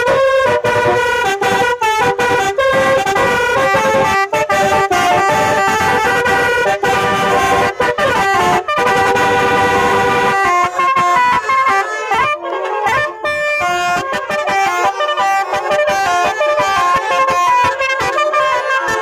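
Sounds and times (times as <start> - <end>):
musical air horns playing: 0.0 - 19.0.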